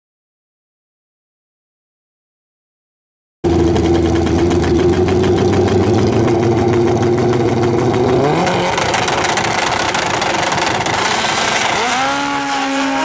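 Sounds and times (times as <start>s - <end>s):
motorcycle engines revving: 3.5s - 13.0s.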